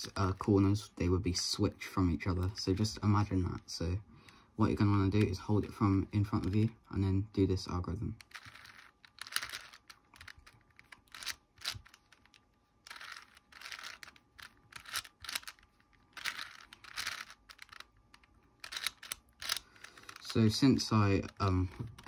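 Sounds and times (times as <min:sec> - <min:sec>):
puzzle cube clicking and rattling: 0:08.2 - 0:22.0.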